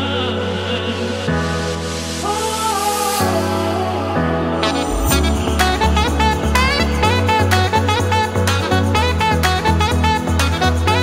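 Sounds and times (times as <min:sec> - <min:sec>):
upbeat song with bass and beat: 0:01.3 - 0:11.0.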